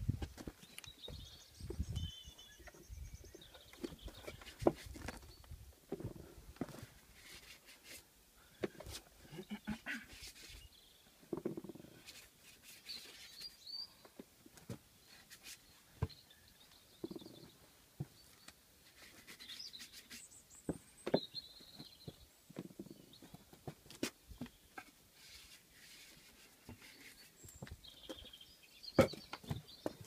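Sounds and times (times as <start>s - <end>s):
faint bird chirps: 0.7s - 4.6s, 12.4s - 14.2s, 15.0s - 23.4s.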